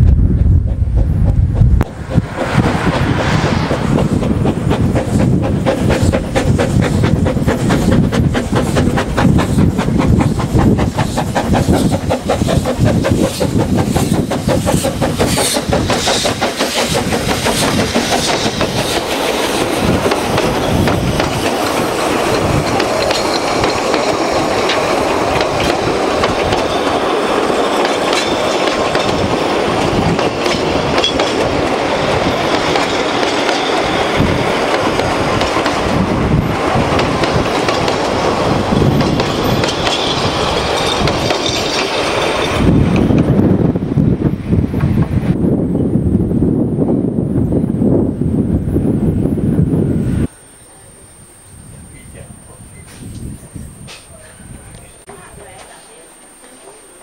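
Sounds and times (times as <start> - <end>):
steam locomotive chuffing: 0.4 - 45.4
wheels clattering on rails: 0.5 - 43.5
escaping steam: 1.9 - 45.4.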